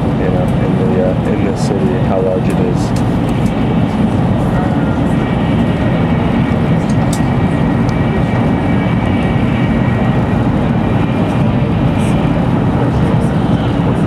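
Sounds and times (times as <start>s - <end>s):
faint steady whine: 0.0s - 14.0s
train rumble and rush: 0.0s - 14.0s.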